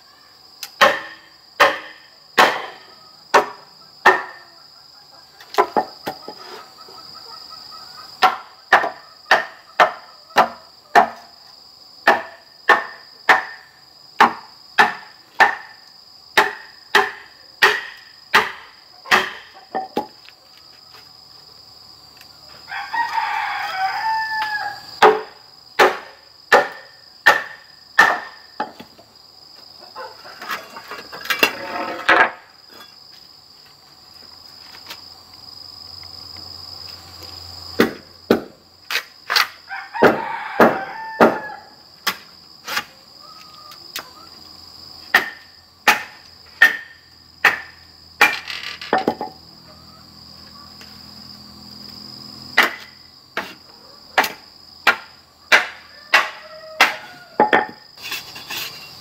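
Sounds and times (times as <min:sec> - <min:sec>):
insects droning: 0:00.0 - 0:59.0
rooster crowing: 0:22.5 - 0:25.0, 0:39.6 - 0:41.9, 0:55.7 - 0:57.8
machete knocking into bamboo: 0:37.8 - 0:41.4, 0:45.1 - 0:49.3, 0:54.2 - 0:57.8.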